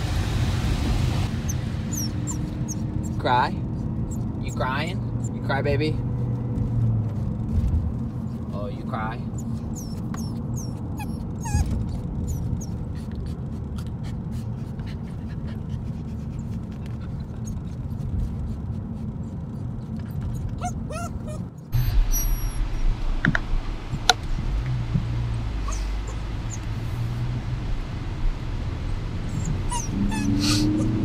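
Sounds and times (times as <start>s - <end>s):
car rumbling on road: 0.0s - 31.0s
puppy whining: 1.4s - 3.3s, 4.0s - 4.6s, 9.3s - 22.7s, 25.6s - 26.7s, 29.3s - 31.0s.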